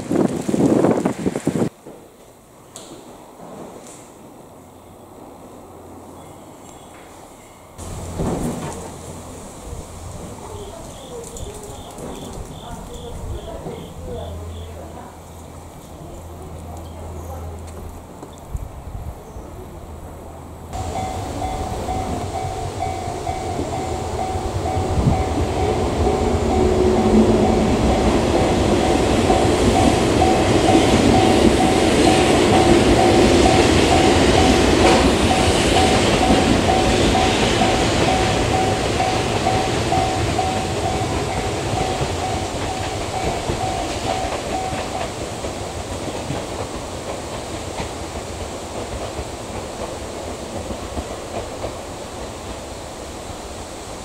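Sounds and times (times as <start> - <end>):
electric train passing: 0.0 - 54.0
level crossing warning bell: 10.4 - 15.0, 20.8 - 45.4.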